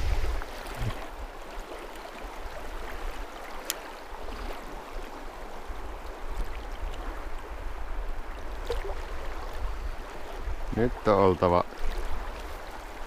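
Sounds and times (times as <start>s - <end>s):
low rumbling on microphone: 0.0s - 1.2s
river current rushing: 0.0s - 13.0s.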